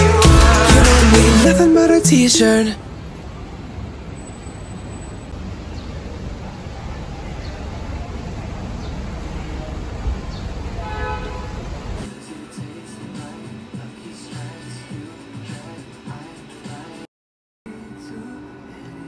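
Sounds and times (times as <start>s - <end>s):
street traffic rumbling: 0.0s - 16.8s
vehicle horn: 10.6s - 12.1s.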